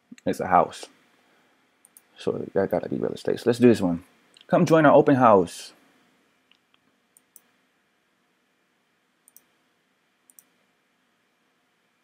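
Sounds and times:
faint computer mouse clicks: 1.8s - 2.1s, 6.5s - 7.5s, 9.2s - 9.5s, 10.3s - 10.5s.

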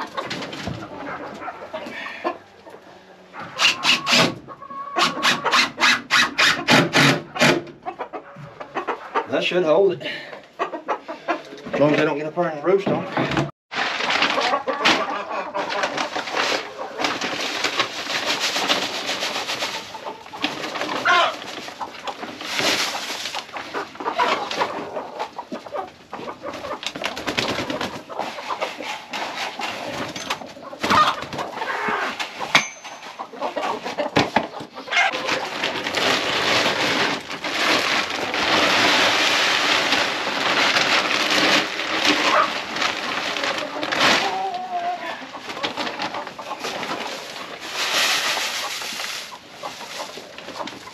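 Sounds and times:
chickens clucking: 0.0s - 50.9s
paper feed bag rustling: 13.7s - 34.1s, 34.9s - 50.9s
feed pouring into plastic bucket: 35.2s - 44.4s.

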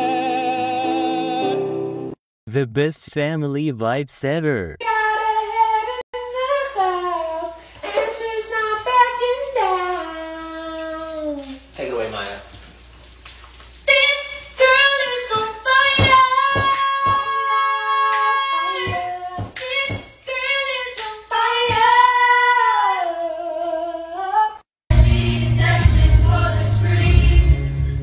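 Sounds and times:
high voice singing unaccompanied: 0.0s - 1.7s, 4.8s - 11.7s, 13.9s - 24.6s
choir singing with instruments: 0.0s - 2.2s, 24.9s - 28.0s
hand claps: 16.0s - 17.3s, 18.1s - 20.1s, 21.0s - 21.2s.

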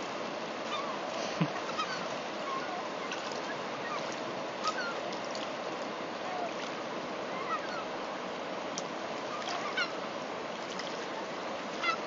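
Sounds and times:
river flowing: 0.0s - 12.0s
gulls calling: 0.6s - 8.4s, 9.1s - 12.0s.

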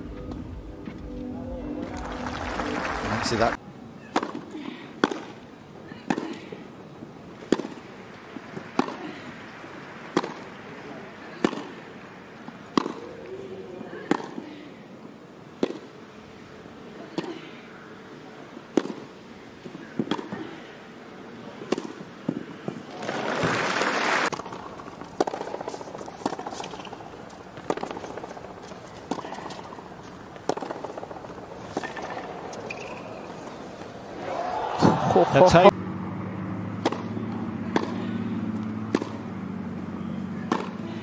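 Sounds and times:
low murmur from crowd: 0.0s - 5.0s
crowd applause: 1.4s - 3.6s, 8.1s - 11.3s, 22.9s - 27.1s, 29.0s - 35.7s
racket striking tennis ball: 4.1s - 5.4s, 6.0s - 6.4s, 7.3s - 13.3s, 14.0s - 14.4s, 15.6s - 16.0s, 18.7s - 20.4s, 21.6s - 35.2s, 36.7s - 39.3s, 40.3s - 41.0s.

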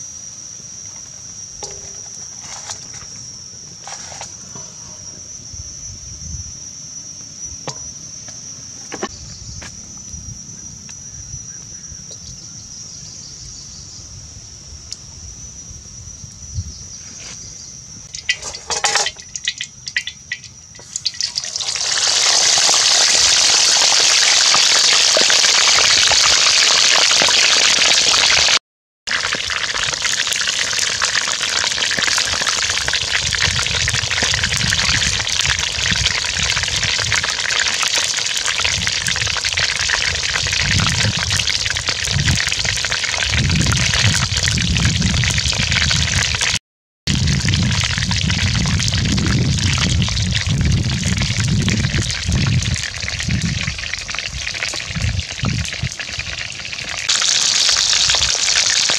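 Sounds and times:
insect drone: 0.0s - 28.5s, 29.1s - 58.9s
chicken sizzling in hot oil: 1.6s - 3.2s, 18.0s - 58.9s
fire crackles: 18.1s - 58.9s.

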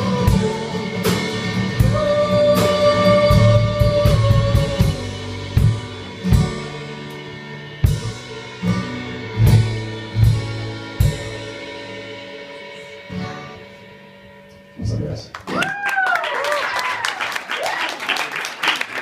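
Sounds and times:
drum and cymbal hits: 0.0s - 7.2s, 7.8s - 12.1s.

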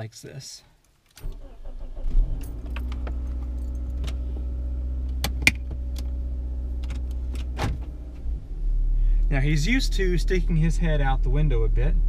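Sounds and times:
car engine starting and idling: 1.2s - 12.0s.

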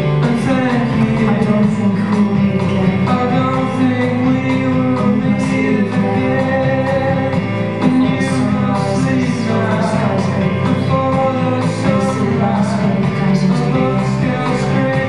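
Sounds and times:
song over sound system: 0.0s - 15.0s.

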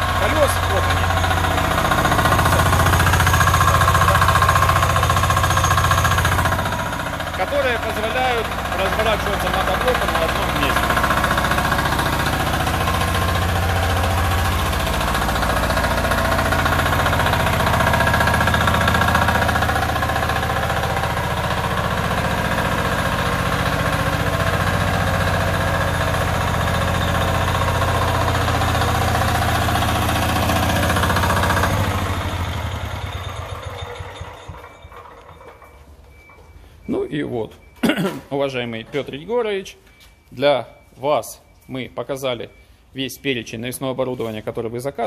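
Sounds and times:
engine shutting off: 0.0s - 37.0s
diesel engine running: 0.0s - 40.2s.

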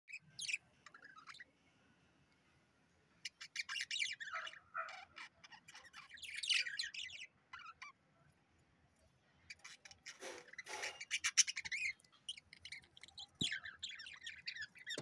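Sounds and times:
budgerigars chirping: 3.2s - 8.0s, 9.5s - 15.0s.

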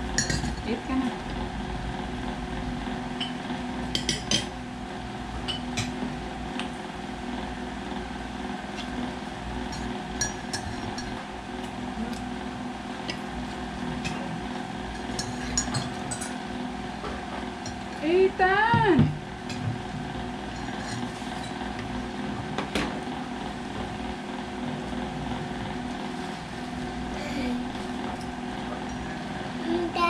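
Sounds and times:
steady background hum: 0.0s - 30.0s
forks clinking against plates: 0.2s - 0.6s, 9.7s - 11.2s, 15.0s - 16.4s.

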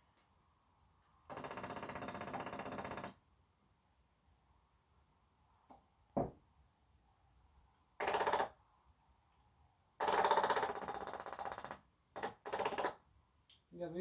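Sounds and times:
thump: 6.2s - 6.4s.

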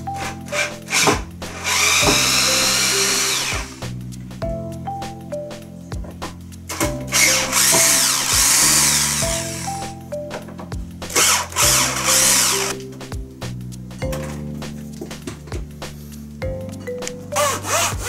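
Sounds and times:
light background music: 0.0s - 18.0s
cordless drill running: 0.5s - 3.8s, 7.1s - 9.7s, 11.1s - 12.8s.

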